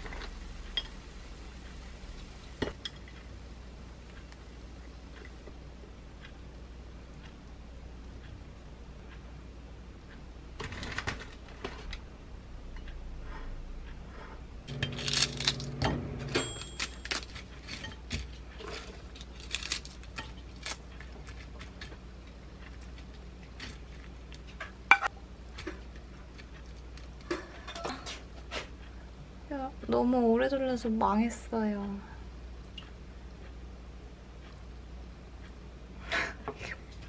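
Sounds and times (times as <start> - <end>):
short steady hum: 11.9 - 16.8.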